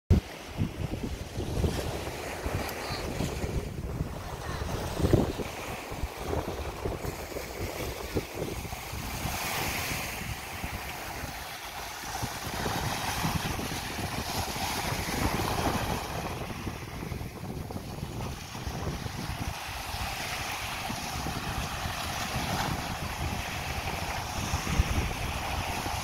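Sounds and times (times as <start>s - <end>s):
small waves breaking on shore: 0.1s - 26.0s
wind buffeting microphone: 0.1s - 26.0s.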